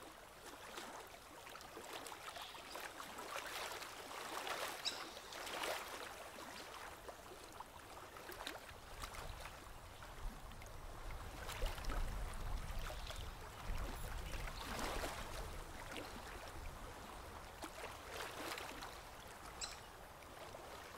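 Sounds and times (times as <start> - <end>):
river water lapping: 0.0 - 20.9.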